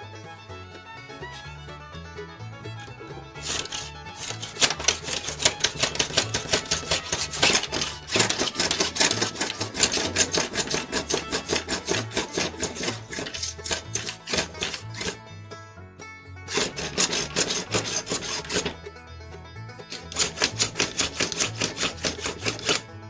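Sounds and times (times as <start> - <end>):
bluegrass music: 0.0 - 23.0
hand plane scraping wood: 3.3 - 15.3, 16.4 - 18.9, 19.8 - 23.0.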